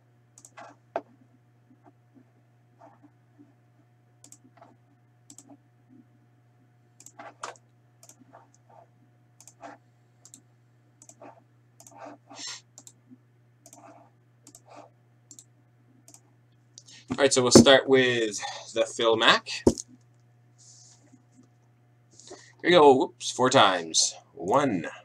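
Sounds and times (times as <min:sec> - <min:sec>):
low electrical hum: 0:00.0 - 0:25.0
keyboard and mouse clicks: 0:00.4 - 0:01.1, 0:04.2 - 0:04.7, 0:05.3 - 0:05.6, 0:07.0 - 0:08.6, 0:09.4 - 0:10.4, 0:11.0 - 0:12.2, 0:12.8 - 0:13.0, 0:13.6 - 0:15.5.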